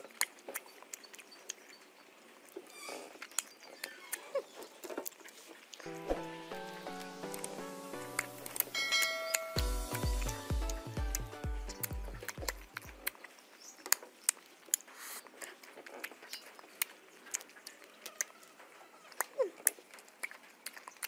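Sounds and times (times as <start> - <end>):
wet eating smacks and clicks: 0.0 - 8.7, 9.3 - 21.0
person humming: 5.8 - 8.8, 9.6 - 12.7
background music with steady beat: 5.9 - 13.0.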